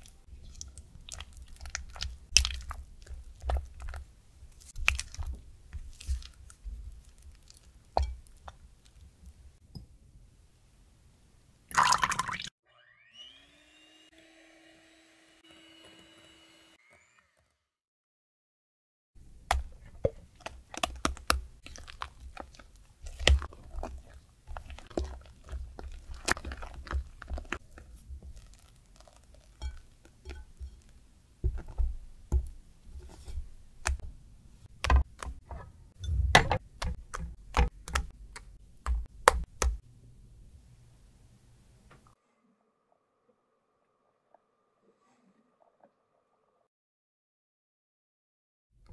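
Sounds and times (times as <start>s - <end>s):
batter squelching scrapes: 0.0s - 9.0s, 19.8s - 31.0s, 32.8s - 34.0s.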